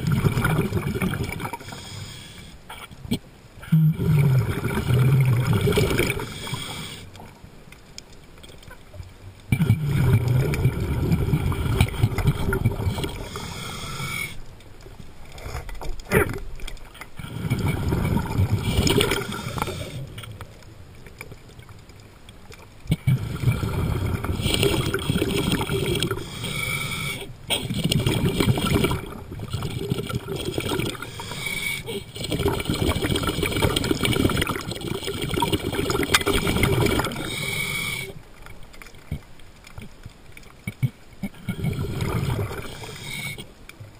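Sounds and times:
underwater breathing bubbles: 0:00.0 - 0:02.9, 0:03.6 - 0:07.3, 0:09.5 - 0:14.5, 0:17.0 - 0:20.5, 0:22.9 - 0:38.5, 0:40.7 - 0:43.6.

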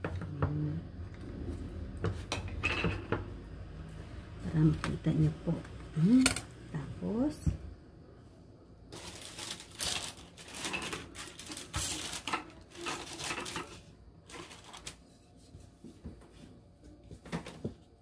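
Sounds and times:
packaging crinkling and rustling: 0:08.9 - 0:15.2.

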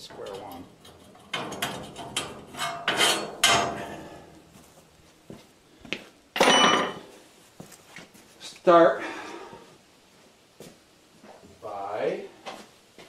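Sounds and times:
steel parts and tools clanking: 0:00.0 - 0:04.4, 0:06.4 - 0:07.0.

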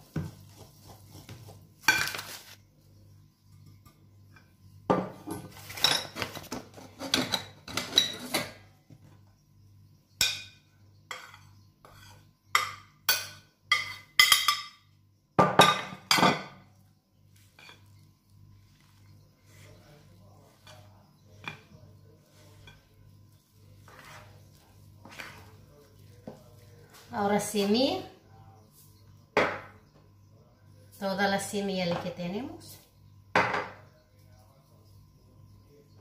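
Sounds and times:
utensils scraping a glass bowl: 0:11.1 - 0:12.3
sharp knocks on bowl: 0:33.3 - 0:33.8.

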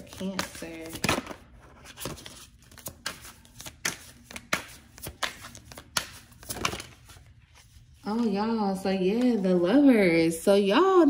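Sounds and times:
cards being shuffled: 0:00.0 - 0:08.3.

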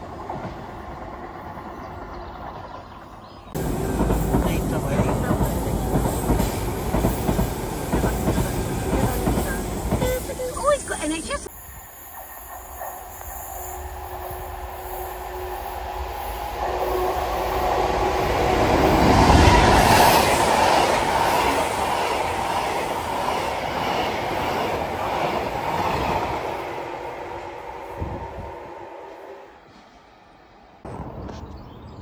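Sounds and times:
freight train wheels clattering: 0:03.6 - 0:10.5.

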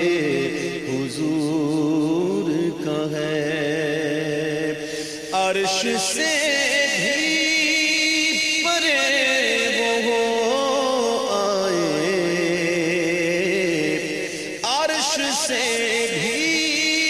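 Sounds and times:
man singing solo: 0:00.0 - 0:17.0.

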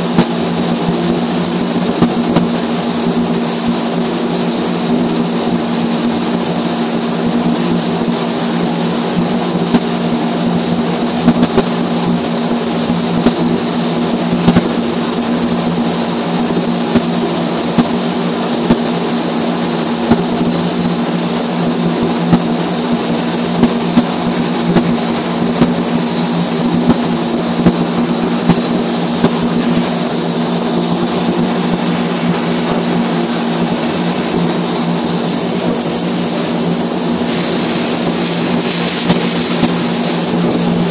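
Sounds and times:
low machinery hum: 0:00.0 - 0:40.9
welding arc crackling and popping: 0:37.0 - 0:40.9.

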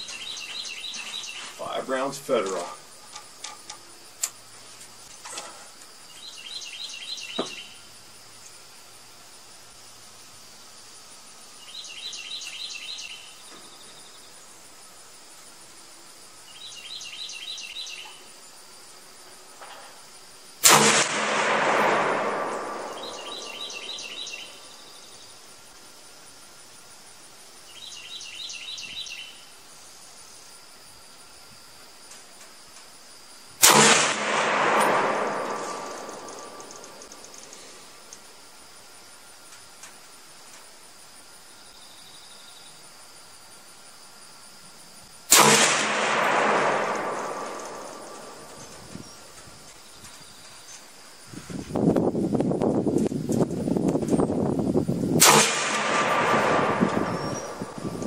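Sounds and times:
rifle shot with echo: 0:20.6 - 0:24.4, 0:33.6 - 0:37.3, 0:45.3 - 0:48.8, 0:55.2 - 0:58.0.

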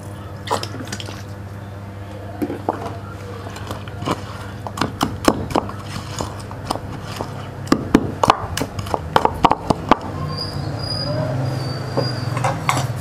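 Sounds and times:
pestle pounding in wooden mortar: 0:03.6 - 0:10.2.

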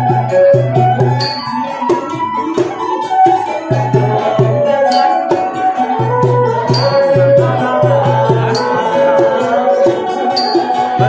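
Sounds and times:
sharp high metallic strike: 0:01.2 - 0:01.8
man singing: 0:04.0 - 0:05.6, 0:06.4 - 0:11.0.

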